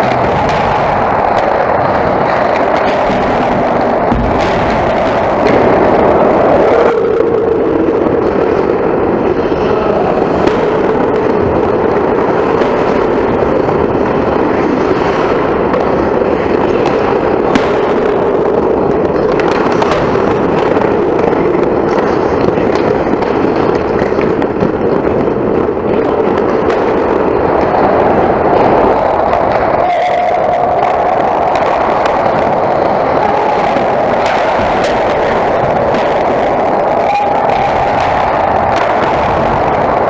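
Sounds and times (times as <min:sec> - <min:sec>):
skates cutting ice: 0:00.0 - 0:40.0
hockey sticks on puck: 0:11.2 - 0:40.0.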